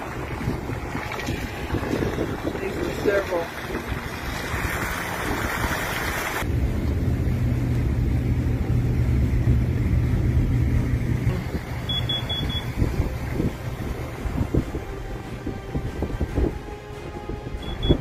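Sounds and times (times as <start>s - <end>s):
wind buffeting microphone: 0.0s - 6.3s, 12.6s - 18.0s
vehicle driving rumble: 0.0s - 16.6s
high beeps: 11.8s - 12.7s, 17.6s - 18.0s.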